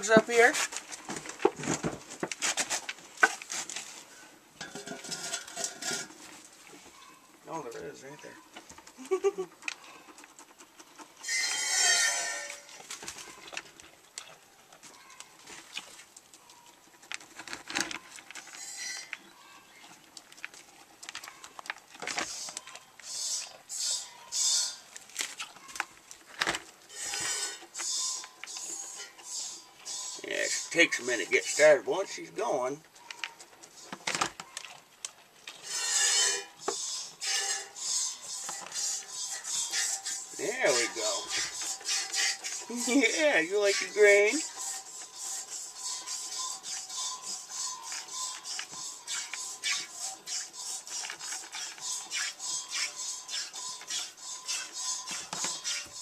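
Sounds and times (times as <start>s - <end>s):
goat bleating: 35.6s - 56.0s.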